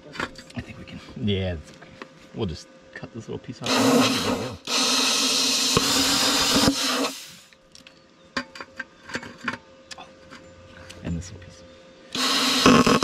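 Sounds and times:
plasma cutter hissing: 0:03.6 - 0:07.5, 0:12.1 - 0:13.0.

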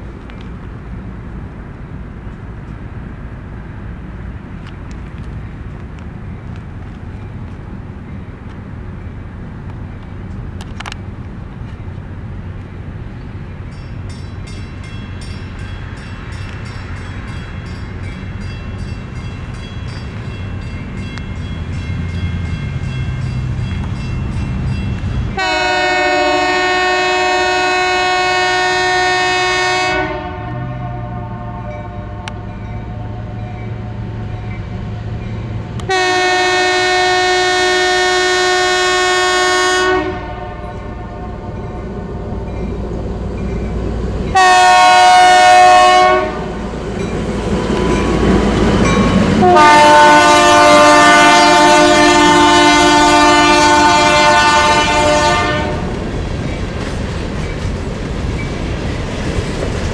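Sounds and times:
diesel locomotive engine rumble: 0:00.0 - 0:59.9
multi-note air horn blasts: 0:25.4 - 0:32.4, 0:35.9 - 0:41.5, 0:44.4 - 0:46.5, 0:49.4 - 0:55.9.

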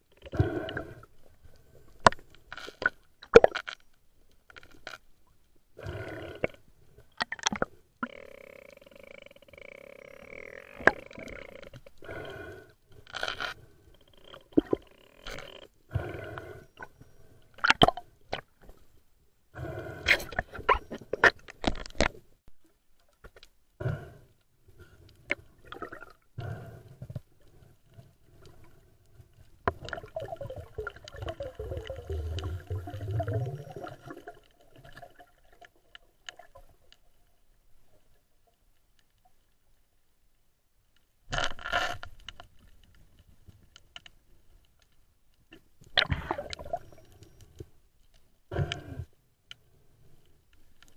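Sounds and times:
muffled underwater gurgling: 0:29.9 - 0:34.3.

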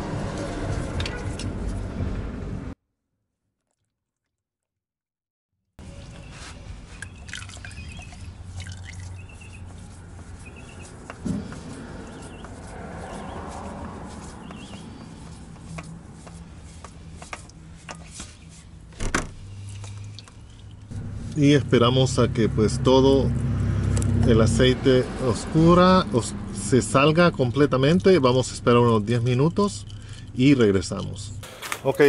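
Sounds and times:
oil trickling and dripping: 0:05.8 - 0:18.6, 0:19.4 - 0:21.4, 0:26.6 - 0:31.2.

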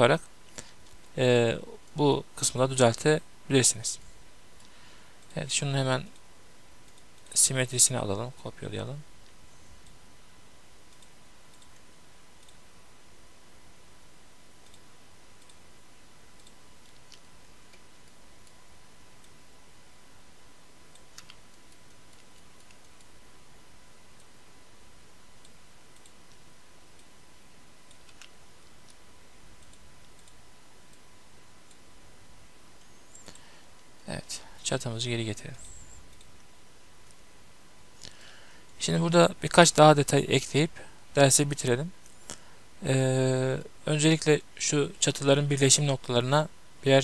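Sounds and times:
low hiss: 0:00.0 - 0:47.0
computer mouse clicks: 0:06.0 - 0:07.4, 0:09.2 - 0:10.0, 0:10.9 - 0:12.6, 0:14.6 - 0:15.6, 0:16.4 - 0:18.6, 0:20.9 - 0:23.2, 0:25.4 - 0:27.1, 0:27.8 - 0:29.0, 0:29.6 - 0:31.0, 0:35.5 - 0:37.2.

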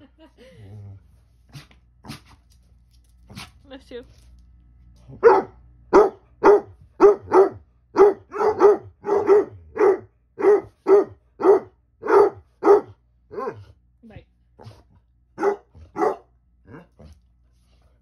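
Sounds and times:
dog barking: 0:05.2 - 0:13.7, 0:15.4 - 0:16.3.

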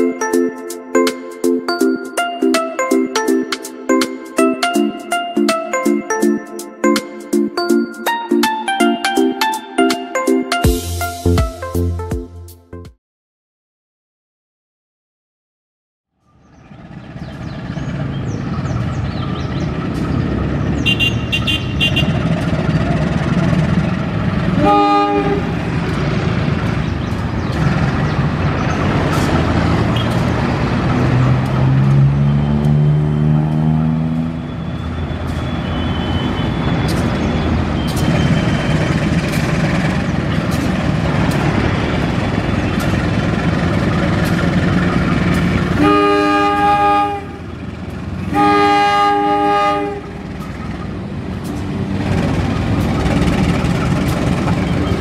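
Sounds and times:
traffic noise: 0:16.2 - 0:55.0
diesel locomotive engine running: 0:16.3 - 0:55.0
locomotive air horn: 0:20.8 - 0:22.3, 0:24.5 - 0:25.8, 0:34.5 - 0:38.6, 0:45.7 - 0:47.5, 0:48.2 - 0:50.3.

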